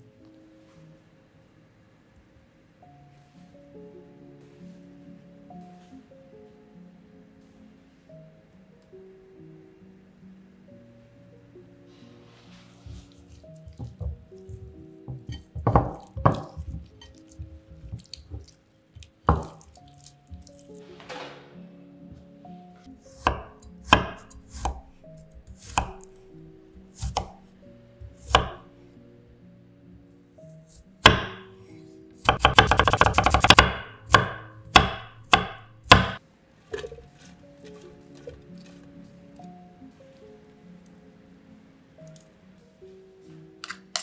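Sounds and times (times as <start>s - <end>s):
soft background music: 0.0s - 44.0s
knife chopping on wooden board: 13.6s - 19.6s, 23.1s - 26.2s, 26.8s - 27.4s, 28.0s - 28.6s, 31.0s - 31.5s, 32.2s - 38.4s
wet squelching of raw chicken: 16.0s - 20.8s.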